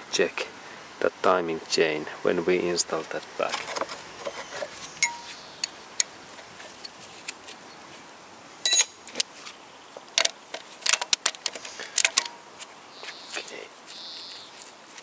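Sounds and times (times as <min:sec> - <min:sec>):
ringing metal clink: 0:05.0 - 0:05.3, 0:08.6 - 0:09.0.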